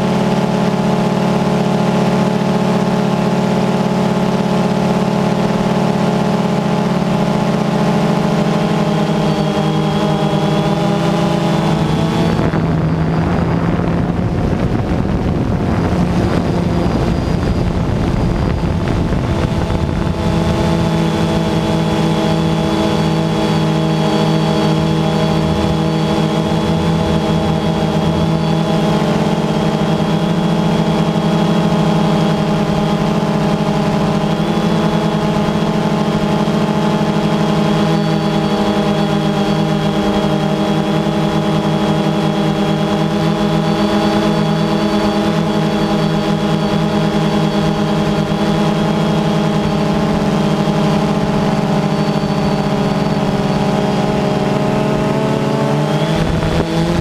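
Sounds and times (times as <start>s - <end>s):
drone propellers buzzing: 0.0s - 57.0s.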